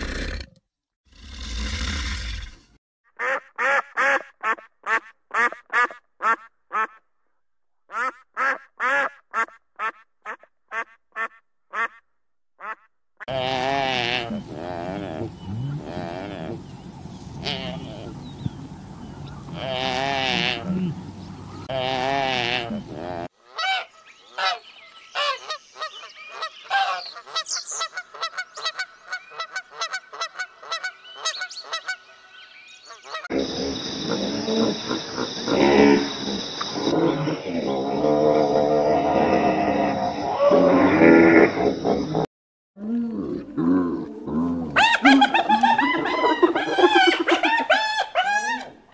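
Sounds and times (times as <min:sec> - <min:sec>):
duck quacking: 0:03.2 - 0:07.0, 0:07.9 - 0:12.0, 0:12.6 - 0:14.7, 0:21.7 - 0:24.6, 0:25.2 - 0:32.0
wildebeest call: 0:12.6 - 0:16.7, 0:17.4 - 0:18.6, 0:19.2 - 0:21.0
geese honking: 0:15.4 - 0:22.8, 0:23.4 - 0:32.2, 0:44.8 - 0:48.8.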